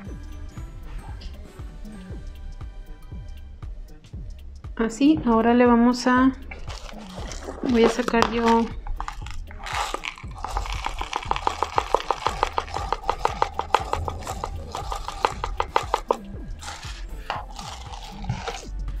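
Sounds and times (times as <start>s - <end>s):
plastic jar rattling clicks: 6.5s - 18.7s.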